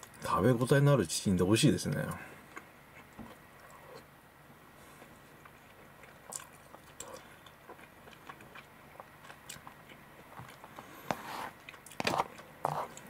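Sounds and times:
quiet chewing: 0:01.9 - 0:04.1, 0:04.8 - 0:13.0.

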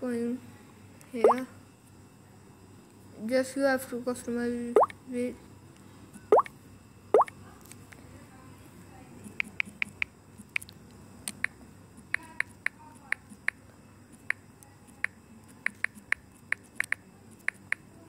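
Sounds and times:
phone keyboard key clicks: 0:15.0 - 0:17.8.

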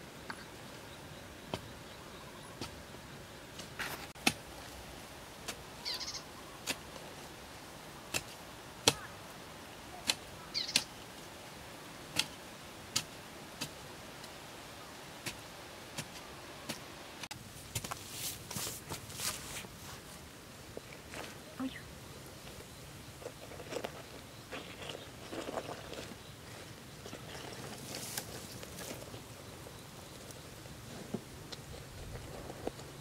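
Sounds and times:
digging tool chopping earth: 0:03.6 - 0:04.5, 0:08.1 - 0:09.1, 0:12.1 - 0:13.8, 0:15.2 - 0:16.8.

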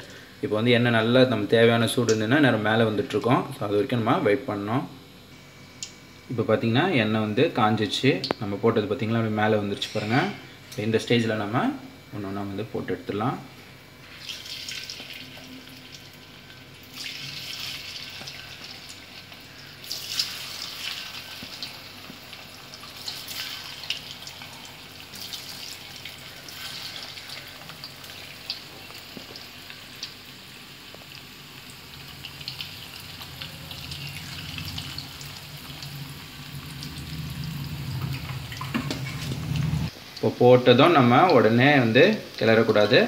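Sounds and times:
hot oil sizzling in a wok: 0:13.8 - 0:43.0
oil crackling and popping: 0:14.2 - 0:24.4, 0:25.1 - 0:40.3.

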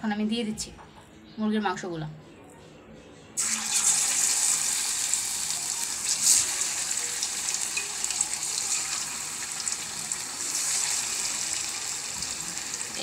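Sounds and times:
chicken sizzling in hot oil: 0:03.4 - 0:13.0.

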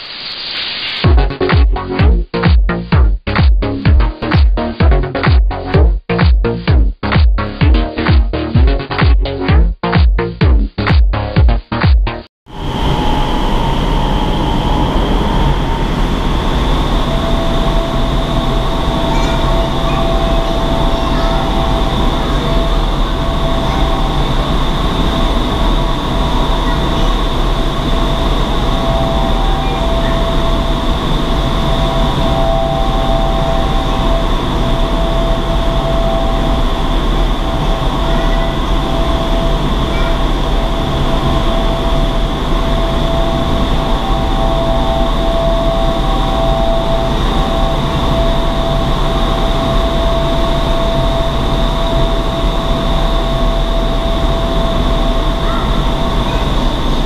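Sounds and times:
loud rush of air: 0:12.5 - 0:57.0
whining fan tones: 0:12.5 - 0:57.0.

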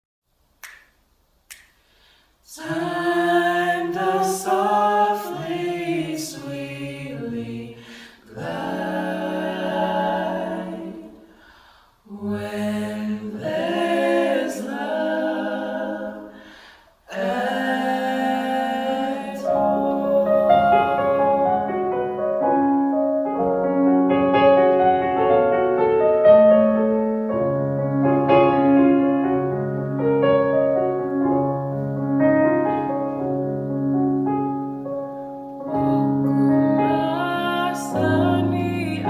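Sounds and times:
voices singing in harmony: 0:02.5 - 0:22.3, 0:35.7 - 0:39.0.

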